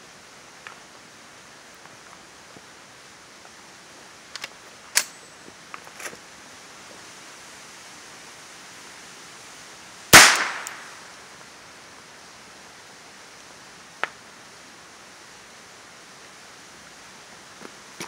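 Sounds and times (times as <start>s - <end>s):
rifle shot: 10.1s - 11.1s.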